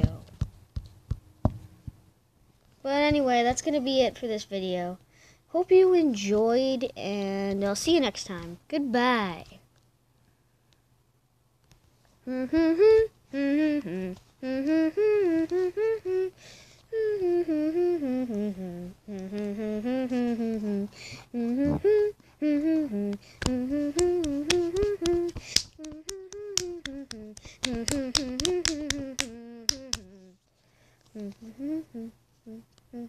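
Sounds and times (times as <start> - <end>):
person humming a tune: 12.2 - 30.4, 31.0 - 33.0.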